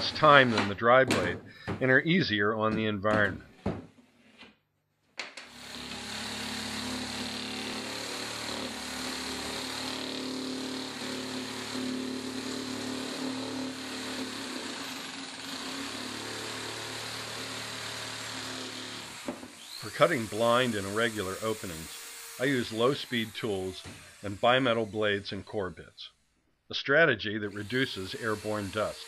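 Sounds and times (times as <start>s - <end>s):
electric power shear cutting board: 5.4s - 25.8s, 27.4s - 29.0s.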